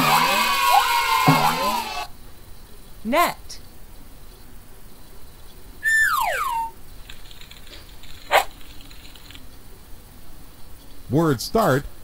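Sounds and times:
falling cartoon whistle: 0.0 - 2.1, 5.8 - 6.8.

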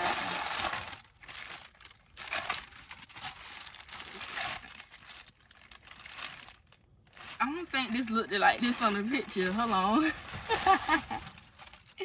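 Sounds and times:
plastic packaging crinkling: 0.0 - 12.0.

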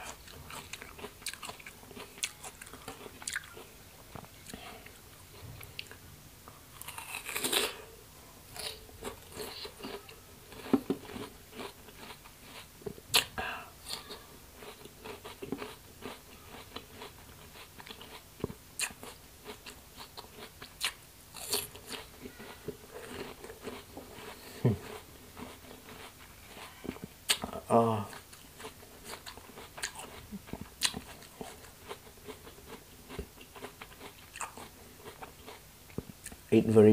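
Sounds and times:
crunchy fruit chewing: 0.0 - 6.0, 6.7 - 36.5.

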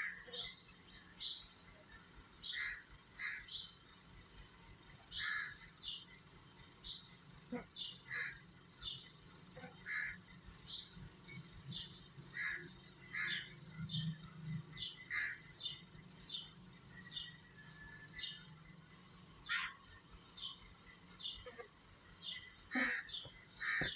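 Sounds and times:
birds chirping: 0.0 - 23.9
louder lower bird call: 21.2 - 23.9.

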